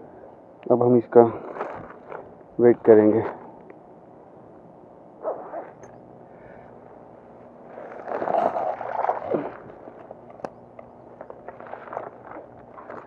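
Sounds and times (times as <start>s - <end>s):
microphone handling noise: 1.4s - 2.4s.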